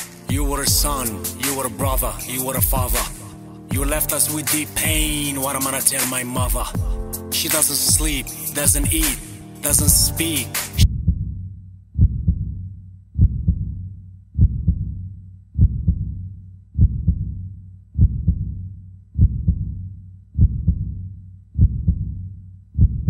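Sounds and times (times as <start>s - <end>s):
heartbeat double thumps: 0.3s - 1.2s, 1.8s - 4.2s, 4.8s - 5.3s, 6.4s - 7.2s, 7.9s - 10.2s, 10.8s - 11.4s, 12.0s - 12.6s, 13.2s - 13.8s, 14.4s - 15.0s, 15.6s - 16.2s, 16.8s - 17.4s, 18.0s - 18.6s, 19.2s - 19.8s, 20.4s - 21.0s, 21.6s - 22.2s, 22.8s - 23.0s.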